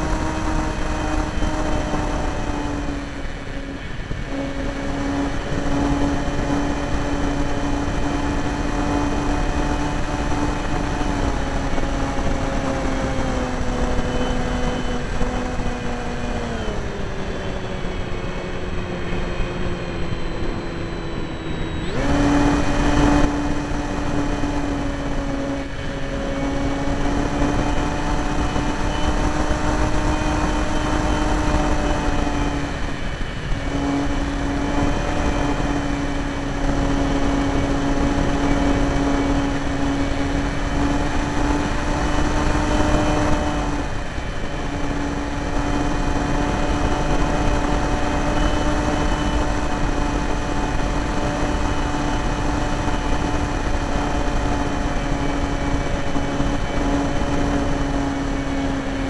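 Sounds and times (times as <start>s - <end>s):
electric motor and propeller whining: 0.0s - 59.0s.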